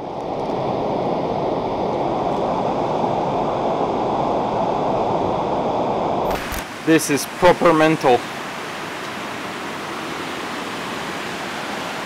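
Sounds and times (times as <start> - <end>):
floodwater rushing: 6.3 - 12.0.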